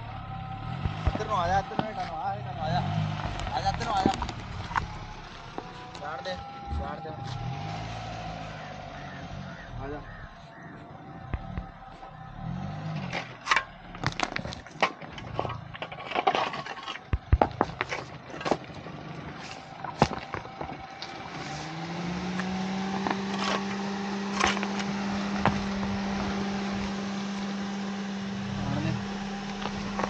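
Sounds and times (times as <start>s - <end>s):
engine hum: 0.0s - 30.0s
gravel crunching under tyres: 0.0s - 30.0s
stones cracking: 13.0s - 21.2s.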